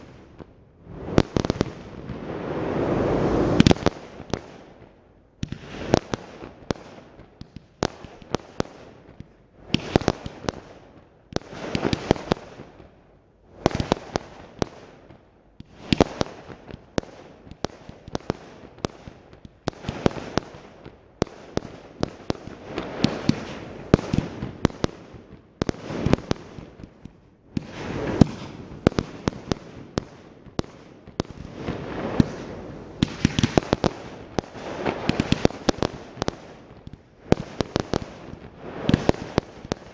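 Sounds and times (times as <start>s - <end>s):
fireworks bangs: 0.8s - 4.6s, 25.6s - 39.9s
fireworks crackling: 0.8s - 4.8s, 15.7s - 39.9s.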